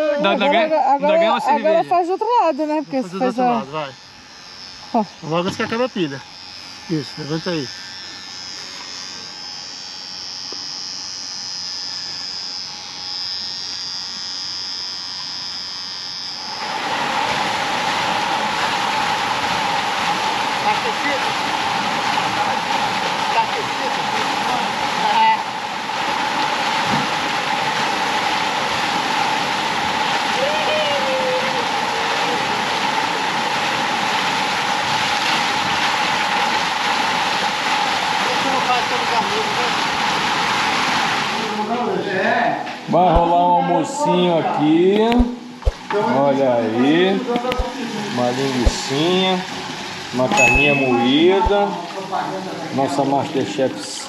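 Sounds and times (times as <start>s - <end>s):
hair trimmer buzzing: 0.0s - 51.9s
waterfall rushing into pool: 16.6s - 42.3s, 44.7s - 53.7s.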